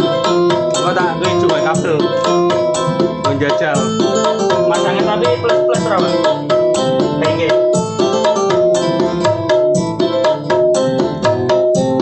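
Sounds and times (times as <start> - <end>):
busy music through speaker: 0.0 - 12.0.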